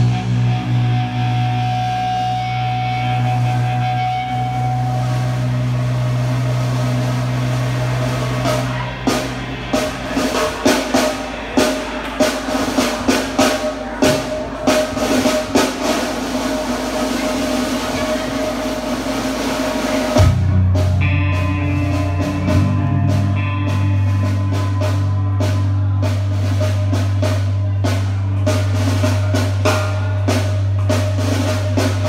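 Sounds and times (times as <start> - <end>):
drum kit beat: 0.0 - 32.0
rock band playing: 0.0 - 32.0
guitars holding low note: 17.9 - 32.0.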